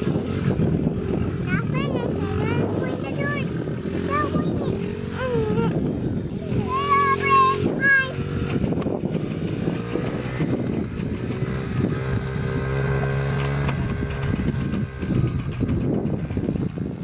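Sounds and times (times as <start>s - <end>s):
dirt bike engine: 0.0s - 17.0s
pickup truck driving on dirt: 0.0s - 17.0s.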